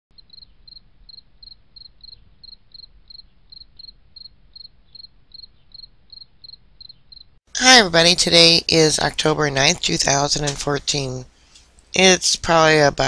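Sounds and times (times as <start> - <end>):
insect chirping: 0.1 - 7.4.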